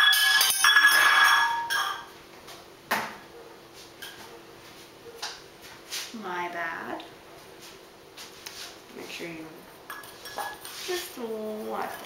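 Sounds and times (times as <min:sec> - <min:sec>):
metal utensil clattering: 0:00.0 - 0:02.1.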